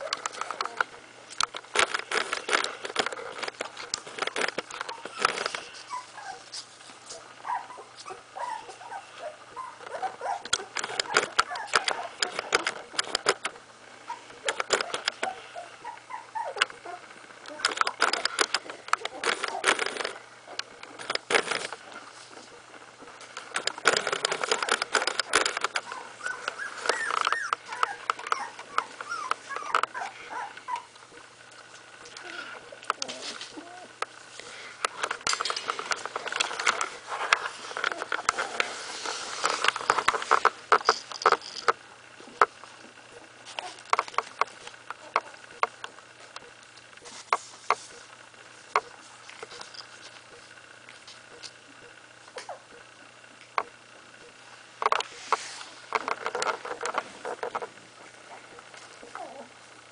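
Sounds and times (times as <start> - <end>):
puppies whimpering and squeaking: 1.9 - 31.0, 32.1 - 42.4, 55.0 - 59.6.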